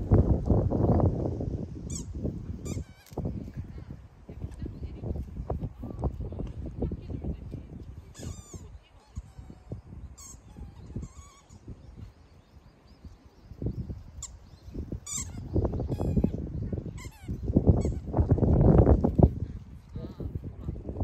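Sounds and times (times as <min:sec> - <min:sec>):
wind buffeting microphone: 0:00.0 - 0:21.0
bird chirping: 0:08.2 - 0:17.4.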